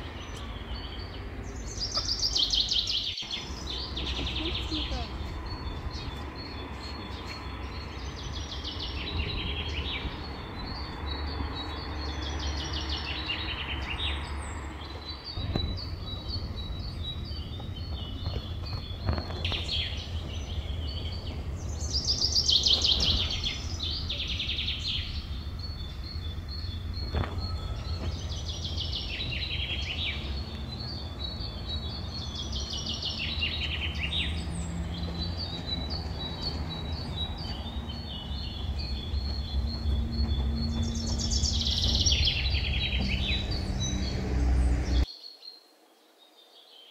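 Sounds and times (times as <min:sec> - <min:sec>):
small birds chirping: 0:00.0 - 0:46.9
steady low rumble: 0:14.4 - 0:32.7, 0:33.6 - 0:45.1.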